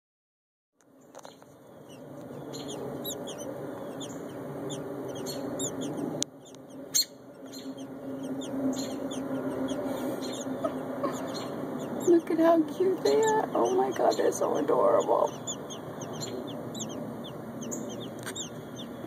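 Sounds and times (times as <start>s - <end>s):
bird nestlings cheeping: 0.9s - 19.0s
steady low rumble: 0.9s - 19.0s.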